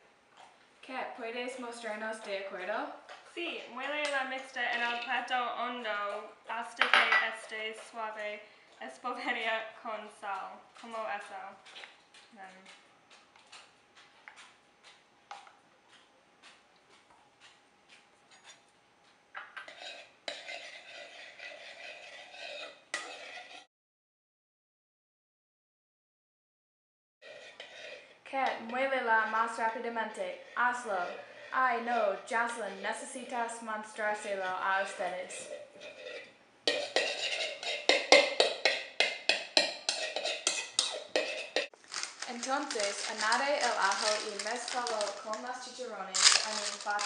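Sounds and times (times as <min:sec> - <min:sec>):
spoon scraping in bowl: 0:19.4 - 0:23.7, 0:27.2 - 0:28.2, 0:29.2 - 0:32.8, 0:34.2 - 0:47.0.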